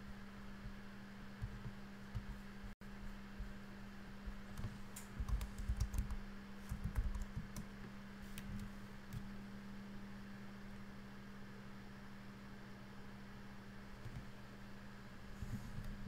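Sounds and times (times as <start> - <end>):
steady low hum: 0.0 - 16.0
typing on computer keyboard: 4.5 - 7.7.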